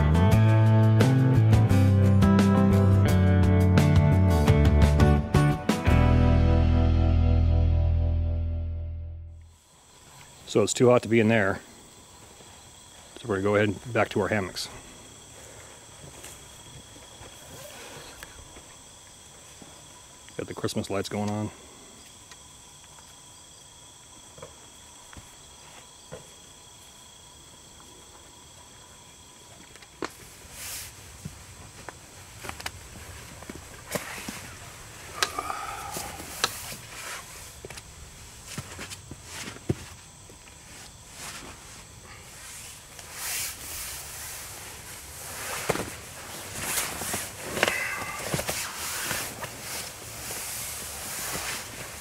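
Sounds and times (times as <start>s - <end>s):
insects trilling: 9.4s - 52.0s
short rustle: 40.6s - 52.0s.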